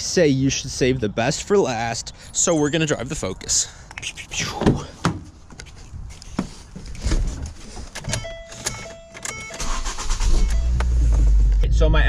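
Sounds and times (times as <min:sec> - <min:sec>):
car engine starting and idling: 0:07.9 - 0:12.0
car warning chime: 0:08.0 - 0:11.2.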